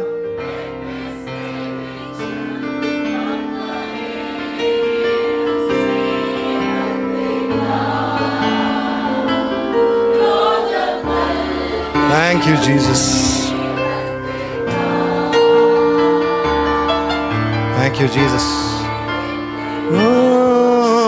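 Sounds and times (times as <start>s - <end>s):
sustained held chords: 0.0s - 21.0s
person singing: 12.0s - 13.6s, 17.8s - 19.0s, 19.8s - 21.0s.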